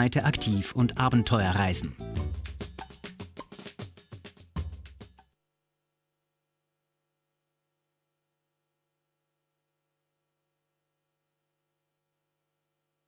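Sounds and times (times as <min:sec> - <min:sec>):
music: 0:00.0 - 0:05.3.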